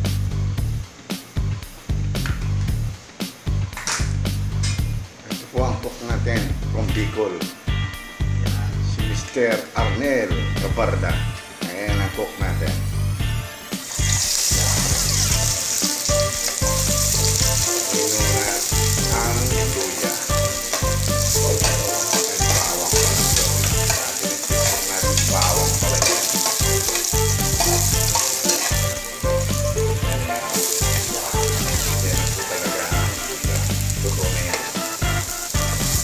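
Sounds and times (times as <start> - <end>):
garlic sizzling in hot oil: 11.1 - 36.0
metal ladle scraping pot: 20.7 - 29.0.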